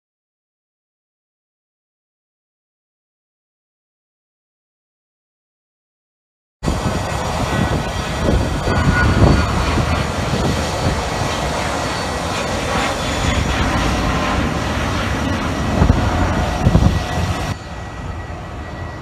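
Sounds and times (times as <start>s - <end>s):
jet engines roaring overhead: 6.6s - 19.0s.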